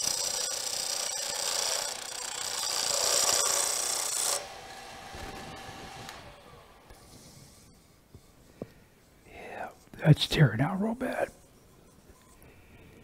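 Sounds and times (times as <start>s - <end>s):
lathe tool scraping wood: 0.0s - 6.3s.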